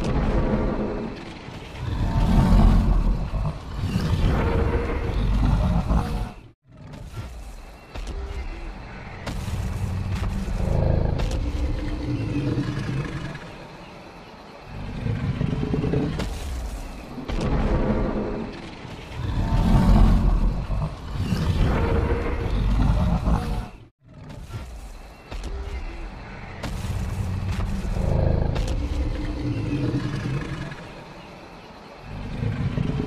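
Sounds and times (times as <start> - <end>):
deep rumbling roars: 0.0 - 6.5, 17.4 - 23.9.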